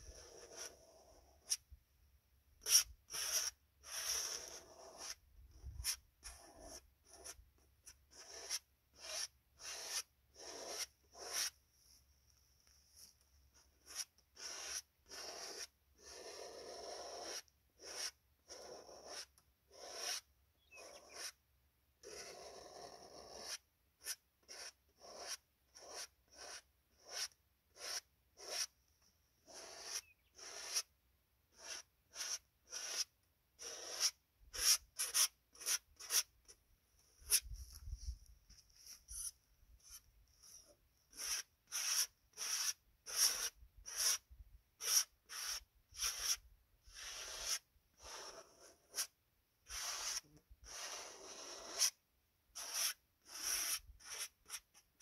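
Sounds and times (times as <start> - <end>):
paintbrush swishing on canvas: 37.2 - 39.4.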